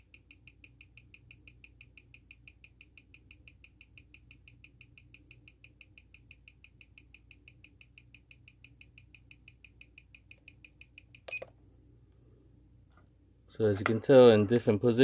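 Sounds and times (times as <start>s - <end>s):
watch ticking fast: 0.0s - 11.2s.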